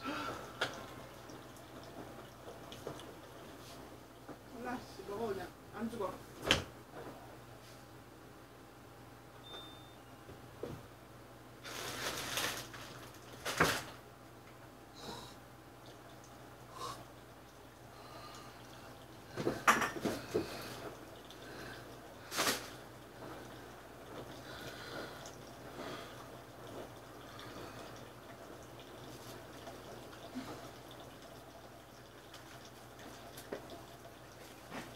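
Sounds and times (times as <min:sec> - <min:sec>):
paper wrapper rustling: 0:11.6 - 0:14.0.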